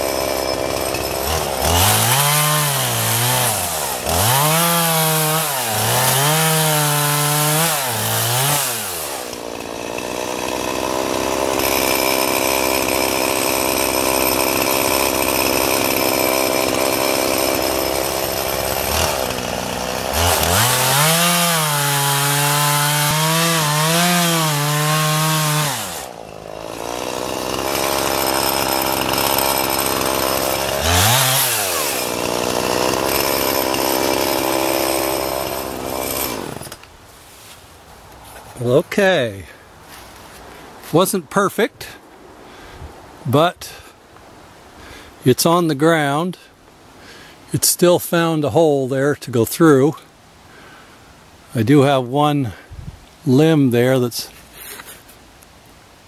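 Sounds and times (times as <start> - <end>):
chainsaw cutting wood: 0.0 - 38.6, 53.4 - 55.2.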